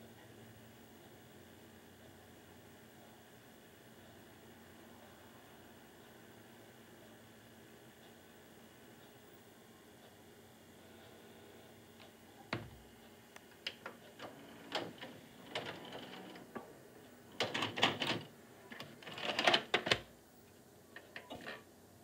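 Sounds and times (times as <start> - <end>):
tape mechanism clicking and whirring: 13.3 - 16.7, 17.3 - 20.1.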